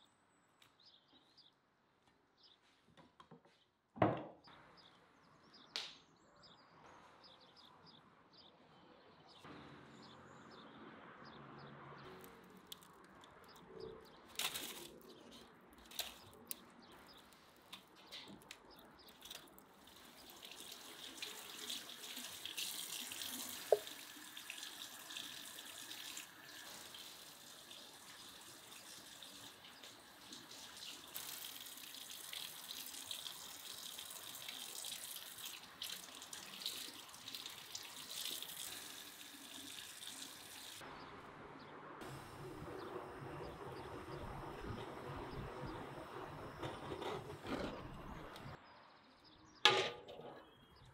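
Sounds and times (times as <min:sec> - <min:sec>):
water splashing off meat: 0:19.0 - 0:40.8
faucet water running into sink: 0:19.1 - 0:40.8.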